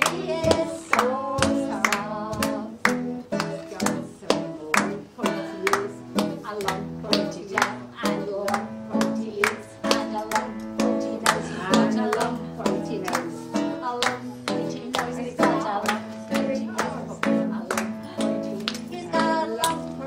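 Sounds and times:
guitar strumming: 0.0s - 20.0s
voices singing along: 0.0s - 20.0s.

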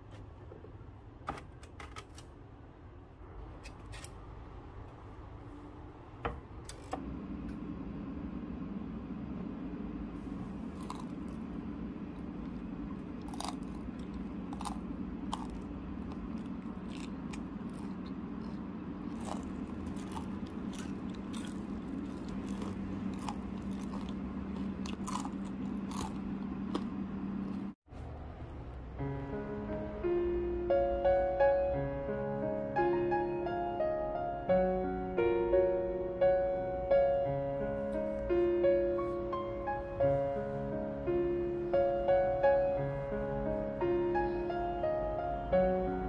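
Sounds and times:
steady low hum: 2.5s - 32.8s.

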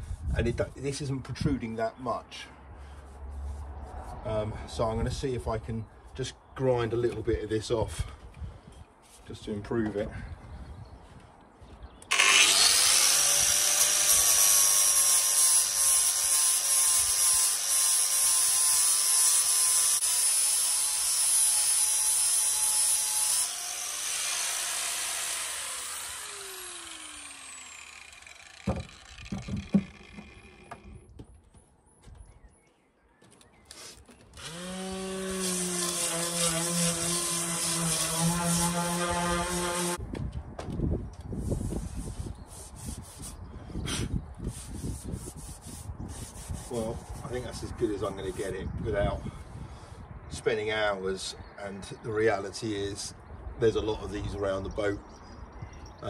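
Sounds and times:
angle grinder grinding steel: 12.1s - 30.9s, 34.4s - 40.0s
knocks: 28.6s - 31.3s.

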